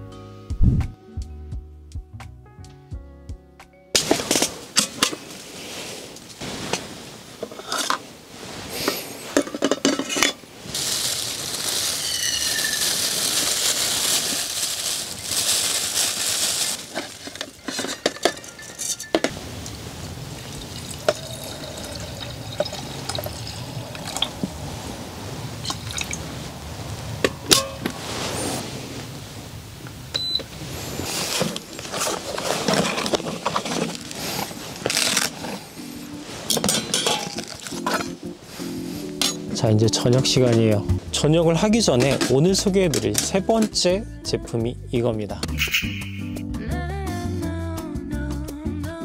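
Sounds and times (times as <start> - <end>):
lid and pot clinking: 9.4 - 10.4, 12.0 - 13.1, 16.9 - 19.4, 20.5 - 24.3, 27.2 - 28.0, 36.5 - 38.2
metal basket clinking: 9.4 - 19.4, 36.5 - 38.2
pouring into a pot: 10.7 - 17.3, 18.5 - 24.7, 25.6 - 26.2.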